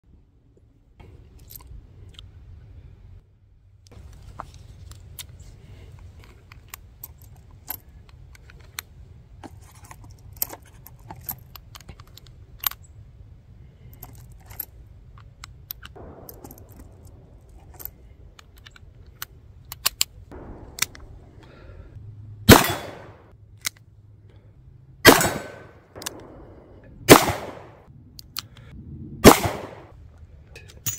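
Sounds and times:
loud revolver shots: 16.0s - 17.4s, 20.3s - 21.9s, 22.5s - 23.3s, 25.0s - 27.9s, 29.2s - 29.9s
cartridges clicking into revolver: 25.1s - 26.5s.

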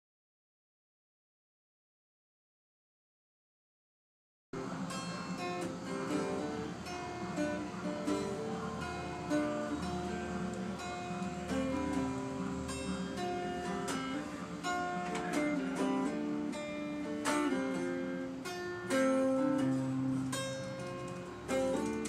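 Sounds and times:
acoustic guitar music: 4.6s - 22.0s.

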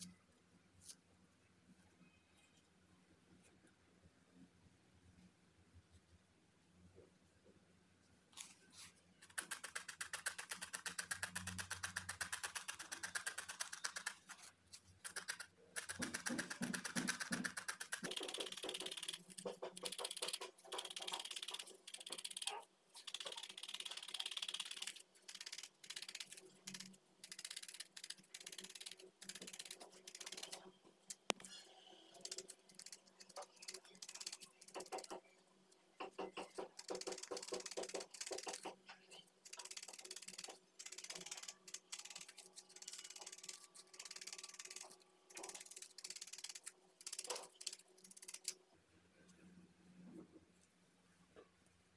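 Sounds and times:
felting needle poking wool: 8.4s - 48.6s.

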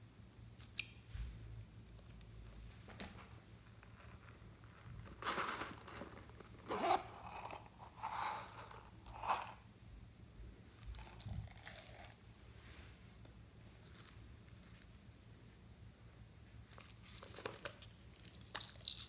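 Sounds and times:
zipper rasping open: 5.3s - 9.6s.

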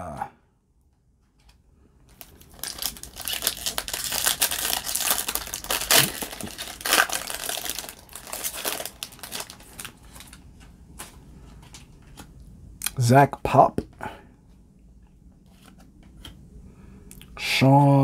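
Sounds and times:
foil wrapper crinkling and tearing: 2.1s - 10.4s.

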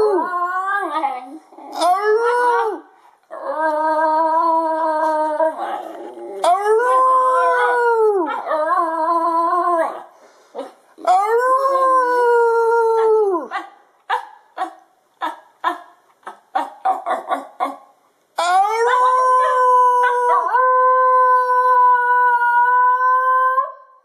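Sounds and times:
dog howling: 1.8s - 10.0s, 18.4s - 23.8s.

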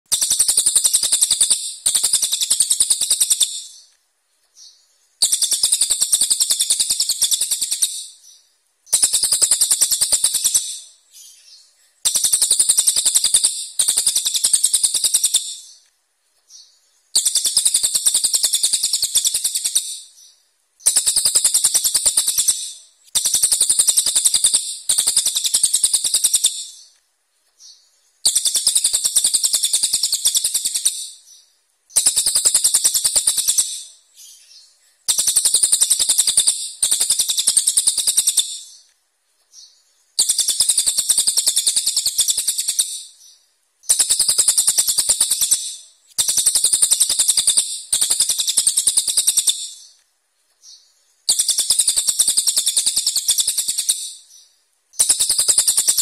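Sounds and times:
bird singing rapid harsh phrases: 0.1s - 50.0s, 50.6s - 56.0s.

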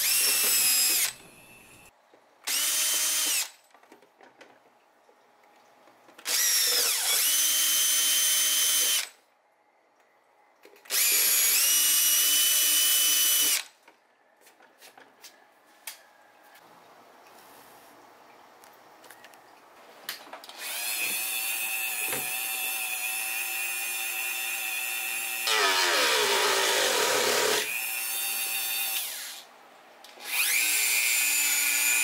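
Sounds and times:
power drill whining through plastic: 0.0s - 1.9s, 2.5s - 3.6s, 6.2s - 9.2s, 10.8s - 13.8s, 20.5s - 29.4s, 30.2s - 32.0s.

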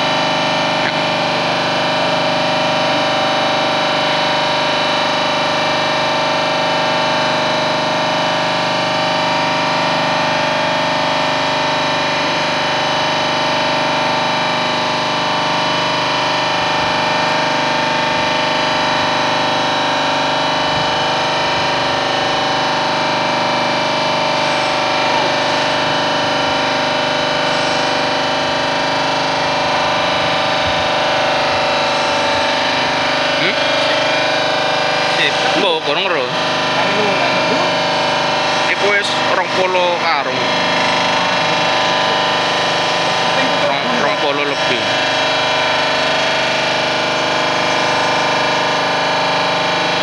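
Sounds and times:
machinery humming and whining: 0.0s - 50.0s.

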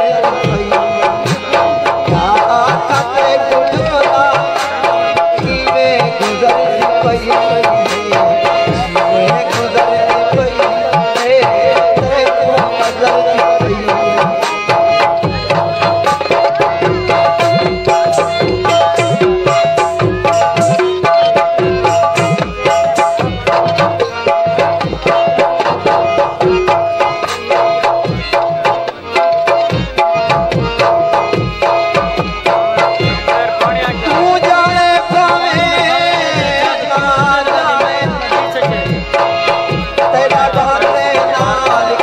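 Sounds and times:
harmonium melody: 0.0s - 42.0s
tabla and dholak drumming: 0.0s - 42.0s.

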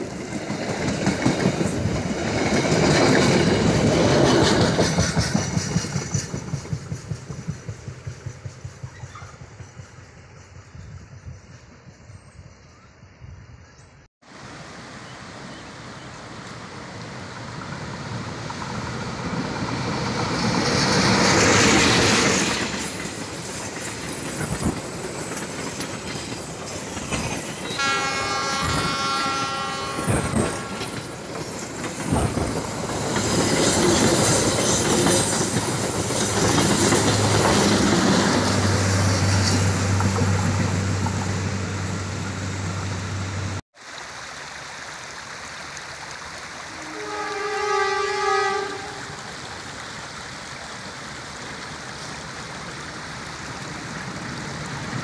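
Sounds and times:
wheels clacking over rail joints: 0.0s - 9.9s, 17.3s - 43.6s
train passing: 0.0s - 13.7s, 14.3s - 43.6s, 46.5s - 55.0s
train horn blast: 27.7s - 31.0s, 46.6s - 49.3s.

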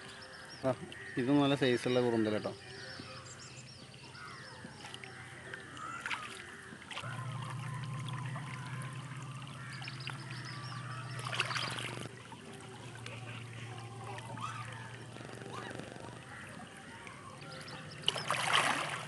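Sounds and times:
water splashing and trickling: 0.0s - 19.0s
low steady hum: 7.0s - 19.0s.

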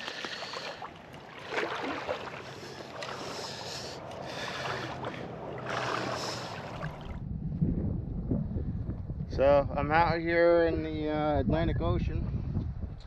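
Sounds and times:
water splashing around wading legs: 0.0s - 7.2s.

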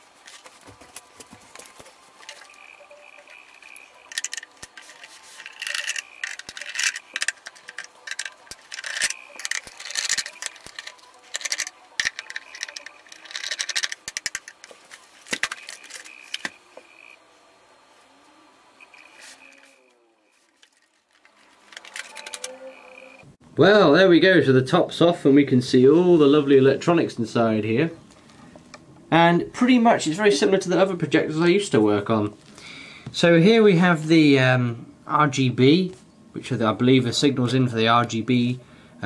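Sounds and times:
metal screws rattling: 1.6s - 16.6s, 20.5s - 23.2s
screwdriver turning screws: 2.2s - 16.6s.

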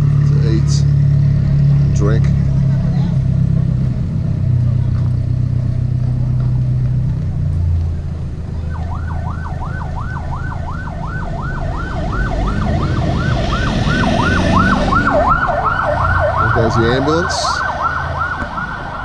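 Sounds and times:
low engine rumble: 0.0s - 19.0s
road noise: 0.0s - 19.0s
ambulance siren yelping: 8.6s - 19.0s.

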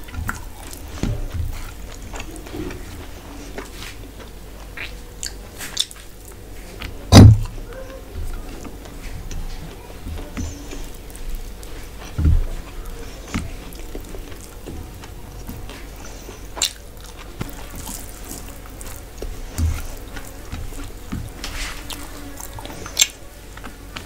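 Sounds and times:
soft low thumps: 0.0s - 3.2s, 6.9s - 16.0s
wet chewing and mouth smacks: 0.0s - 7.6s, 10.1s - 24.0s
fingers squishing rice: 0.0s - 24.0s.

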